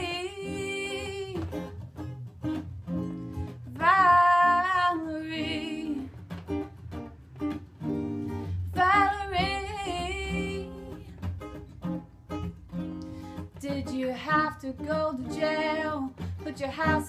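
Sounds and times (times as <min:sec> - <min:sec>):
woman singing long held notes: 0:00.0 - 0:01.6, 0:03.7 - 0:06.1, 0:08.7 - 0:11.1, 0:13.6 - 0:17.0
strummed acoustic guitar: 0:00.0 - 0:17.0.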